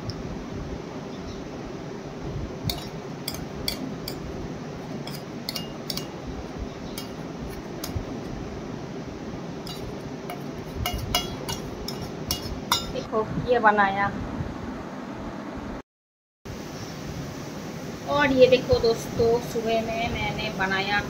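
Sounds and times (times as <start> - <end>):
saucepan clinking and scraping: 2.7 - 6.2, 7.0 - 8.0, 9.7 - 13.0.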